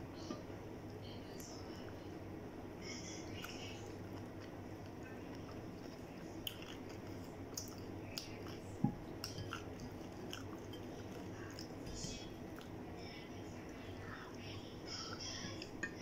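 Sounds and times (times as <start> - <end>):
steady low hum: 0.0 - 16.0
close-up chewing: 3.4 - 12.8.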